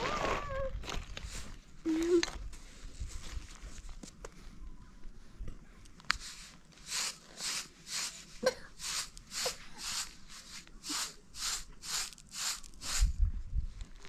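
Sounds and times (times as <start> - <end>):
short scraping strokes: 6.2 - 13.1.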